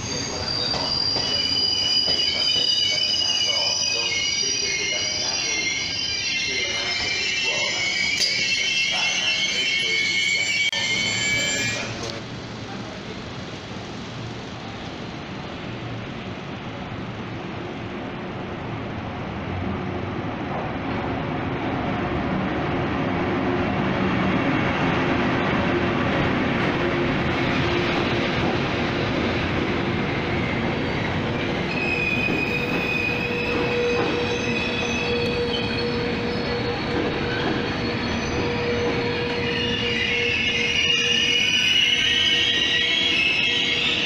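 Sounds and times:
squeal of wheels and brakes: 0.0s - 12.1s, 30.4s - 44.0s
train coaches rolling past: 0.0s - 44.0s.

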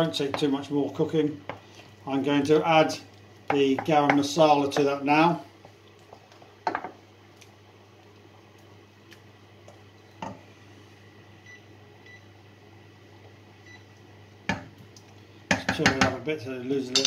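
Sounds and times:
wooden spoon knocking on saucepan: 3.5s - 4.9s, 6.6s - 7.0s, 15.5s - 16.2s.

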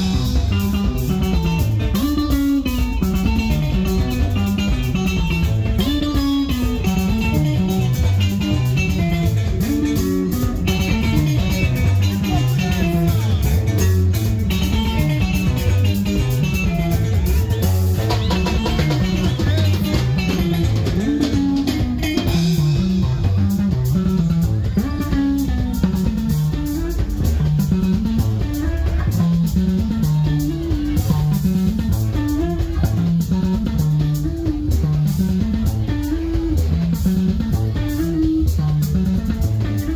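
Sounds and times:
electric bass melodic line: 0.0s - 39.9s
live band instrumental: 0.0s - 39.9s.

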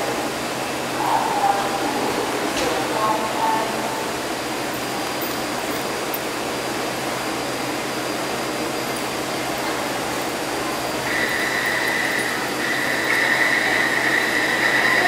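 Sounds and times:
train ventilation whirring: 0.0s - 15.0s
faint high whine: 9.6s - 15.0s.

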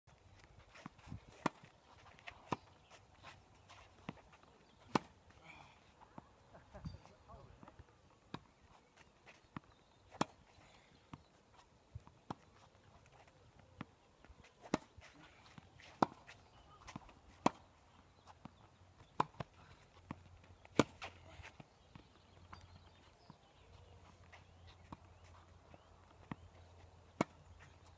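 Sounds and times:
tennis balls hit with racket: 4.0s - 6.3s, 9.5s - 10.5s, 13.5s - 27.9s.

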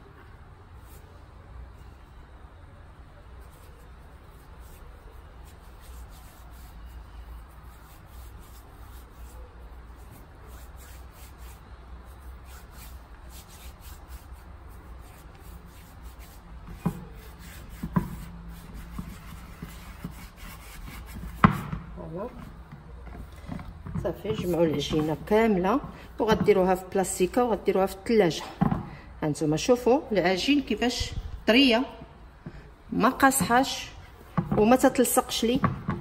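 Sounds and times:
hands rubbing together: 3.4s - 21.4s.

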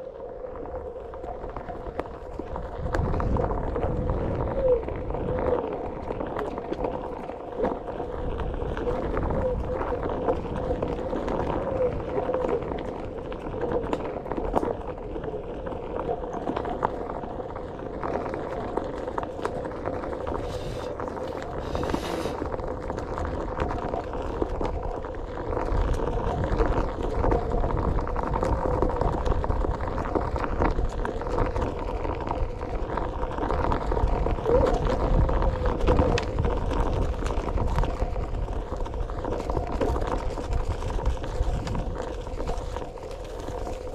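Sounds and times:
wind buffeting microphone: 0.0s - 16.2s, 17.0s - 43.9s
tyre rumbling on dirt trail: 0.0s - 43.9s.

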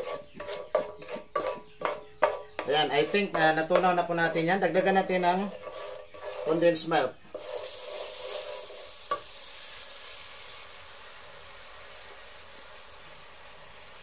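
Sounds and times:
condensed milk sizzling in a pan: 5.6s - 14.0s.

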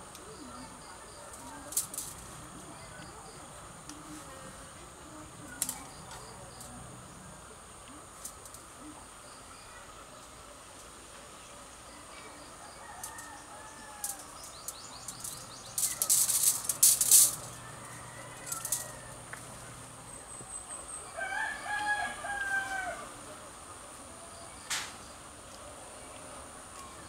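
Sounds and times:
high insect trill: 0.0s - 25.5s
sharp clicks and rattles: 1.3s - 2.3s, 14.0s - 17.6s, 18.4s - 18.9s
rooster crowing: 12.6s - 19.7s, 21.1s - 23.3s.

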